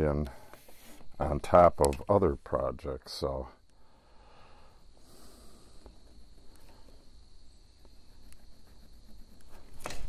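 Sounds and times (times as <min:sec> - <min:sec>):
high-pitched insect trill: 0:00.8 - 0:10.0
marker scratching on tape: 0:07.8 - 0:10.0.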